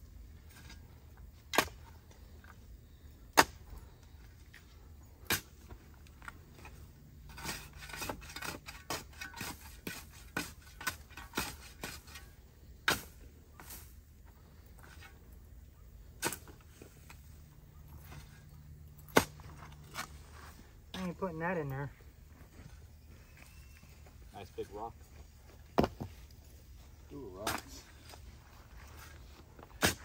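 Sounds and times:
shovel digging in soil: 0:06.6 - 0:14.0, 0:16.1 - 0:21.1, 0:28.9 - 0:30.0.

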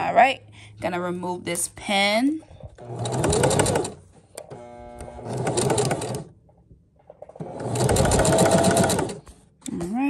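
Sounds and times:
sewing machine stitching: 0:02.8 - 0:06.4, 0:07.3 - 0:09.4.

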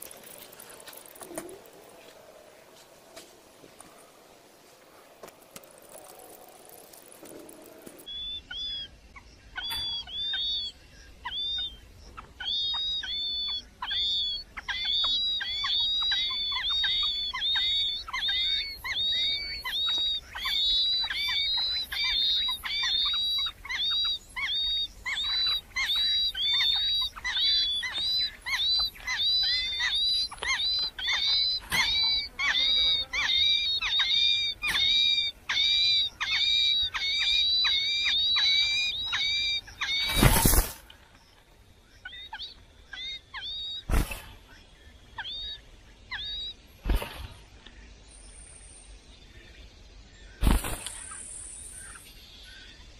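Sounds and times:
nestling birds cheeping: 0:05.1 - 0:52.9.

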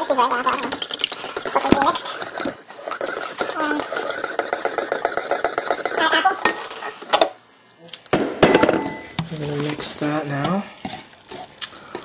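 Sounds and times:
whisk clinking against bowl: 0:00.0 - 0:07.0.

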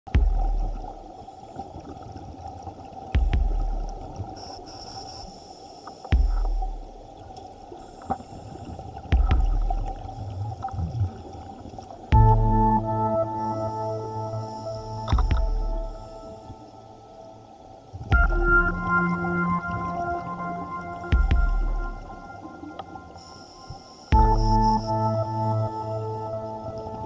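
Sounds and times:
music: 0:00.1 - 0:01.3, 0:03.2 - 0:04.6, 0:05.4 - 0:07.2, 0:09.2 - 0:10.2, 0:12.1 - 0:27.0
regulator bubbles burbling: 0:00.1 - 0:04.5, 0:08.9 - 0:12.9, 0:15.0 - 0:16.3, 0:18.0 - 0:22.9
underwater hiss: 0:03.8 - 0:06.2, 0:07.7 - 0:09.2, 0:13.4 - 0:15.2, 0:15.8 - 0:17.8, 0:22.8 - 0:24.2.

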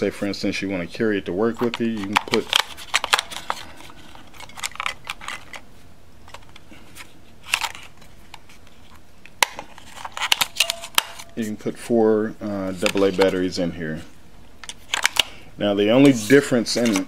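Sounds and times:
batteries clicking into compartment: 0:01.6 - 0:05.6, 0:09.2 - 0:11.3, 0:14.6 - 0:15.4
batteries rattling: 0:01.6 - 0:05.6.

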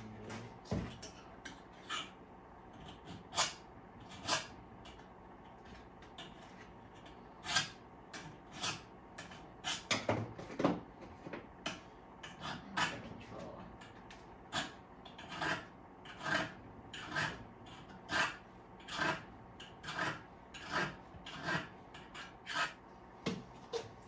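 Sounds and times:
file scraping metal blade: 0:00.9 - 0:05.0, 0:05.6 - 0:10.0, 0:11.7 - 0:22.8.

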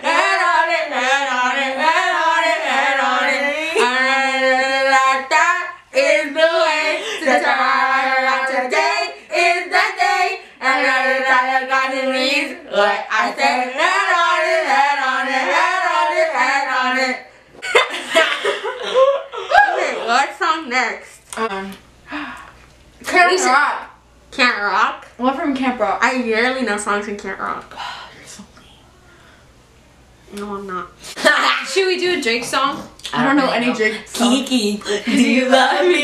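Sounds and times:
women singing: 0:00.0 - 0:17.3, 0:34.8 - 0:36.0.

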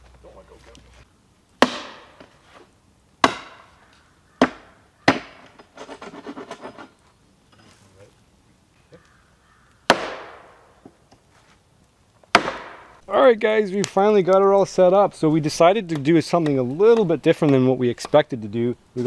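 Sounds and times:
tool striking wood: 0:01.6 - 0:02.3, 0:03.2 - 0:03.7, 0:04.4 - 0:05.6, 0:09.9 - 0:10.5, 0:12.3 - 0:12.9
rattling scrape: 0:05.6 - 0:07.0.

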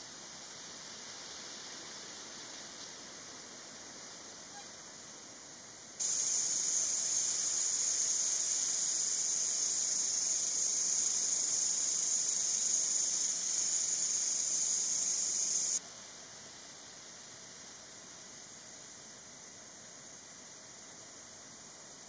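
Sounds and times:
night insects buzzing: 0:05.0 - 0:22.0.

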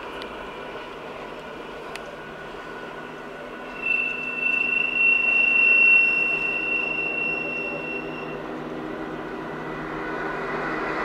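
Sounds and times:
train low running noise: 0:00.0 - 0:11.0
train wheels squealing: 0:03.6 - 0:08.5.

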